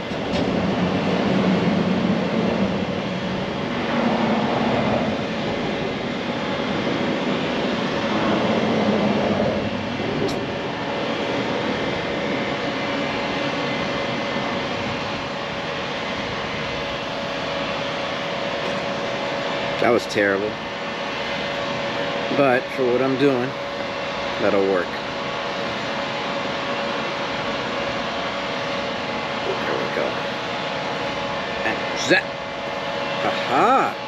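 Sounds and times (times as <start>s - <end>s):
traffic rumble overhead: 0.0s - 34.0s.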